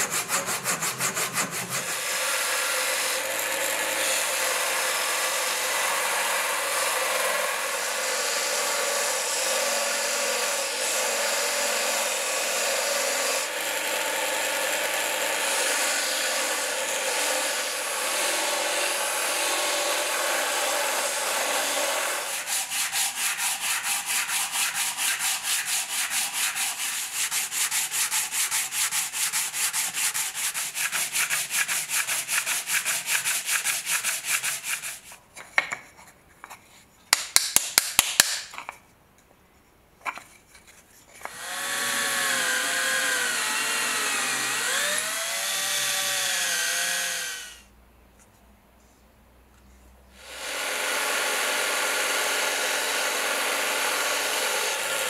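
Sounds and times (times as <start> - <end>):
wood rubbed on sandpaper: 0.0 - 3.2, 22.3 - 35.2
belt sander grinding wood: 0.0 - 35.1, 41.2 - 47.6, 50.2 - 55.0.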